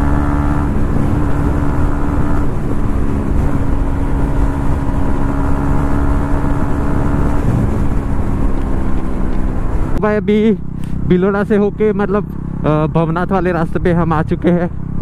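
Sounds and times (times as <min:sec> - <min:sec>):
wind rush on microphone: 0:00.0 - 0:10.0
motorcycle engine cruising: 0:00.0 - 0:15.0.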